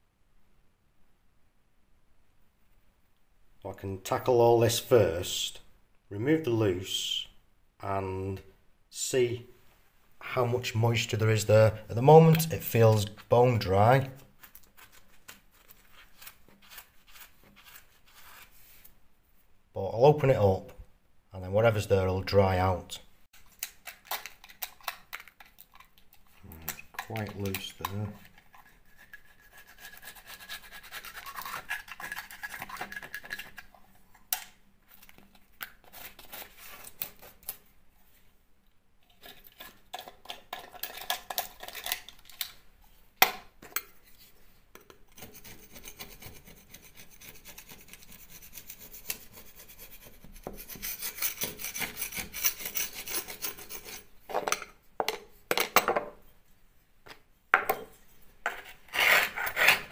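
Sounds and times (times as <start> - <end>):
knife scraping plaster: 12.3 - 18.9, 23.5 - 33.8, 34.9 - 37.6, 39.1 - 42.2, 43.8 - 54.1, 58.4 - 59.9.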